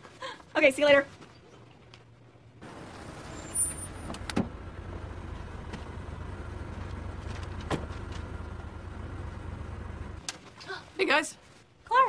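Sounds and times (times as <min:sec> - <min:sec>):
road noise: 0:01.2 - 0:11.9
car engine hum: 0:02.6 - 0:10.3.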